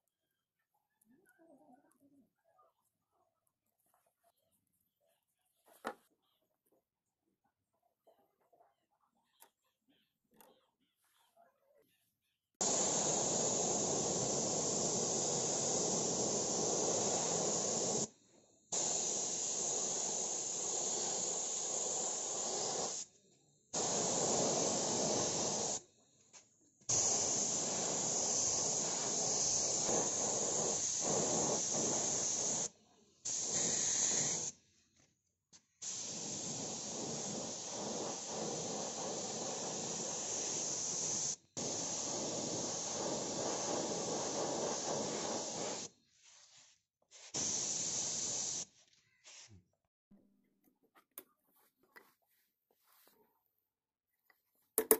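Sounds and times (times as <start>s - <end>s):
spray paint can hissing: 12.6s - 49.5s.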